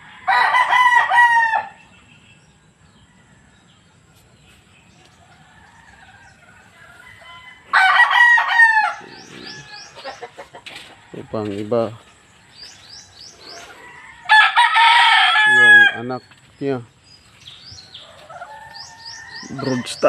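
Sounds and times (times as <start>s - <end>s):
rooster crowing: 0.0s - 1.8s, 5.3s - 11.4s, 13.4s - 16.0s, 17.9s - 20.0s.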